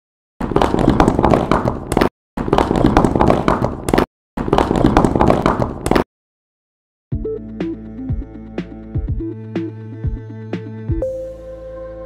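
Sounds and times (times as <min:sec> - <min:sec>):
blocks falling and clattering: 0:00.4 - 0:06.0.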